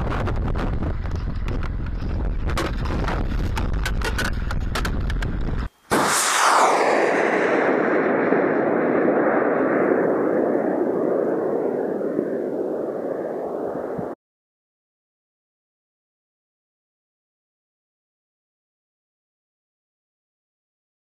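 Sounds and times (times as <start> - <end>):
rocket motor roaring: 5.9 - 8.8.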